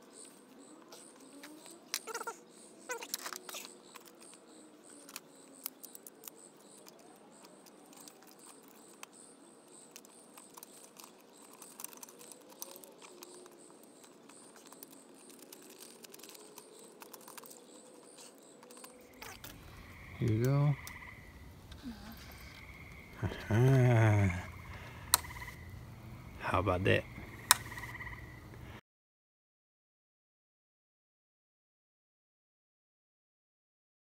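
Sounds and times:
screwdriver turning screw: 9.9 - 19.4.

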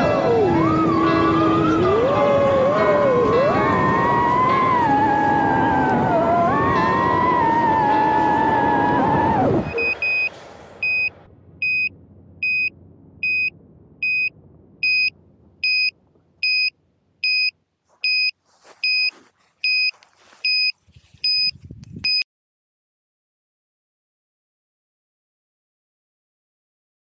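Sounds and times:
drone beeper beeping: 6.8 - 19.1
faint rustling: 17.8 - 21.7.

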